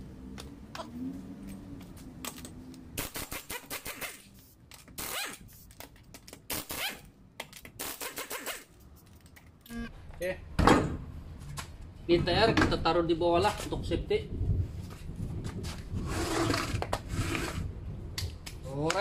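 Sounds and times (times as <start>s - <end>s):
pneumatic impact wrench hammering: 3.0s - 4.3s, 7.8s - 8.7s.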